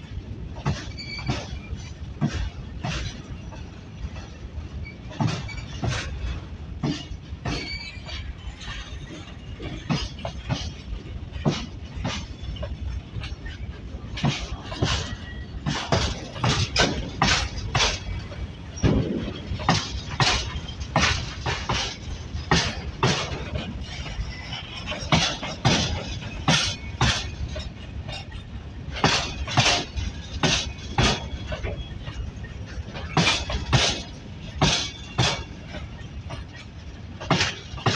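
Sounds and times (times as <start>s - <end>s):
low train rumble: 0.0s - 37.9s
train wheels clacking over rail joints: 0.0s - 37.9s.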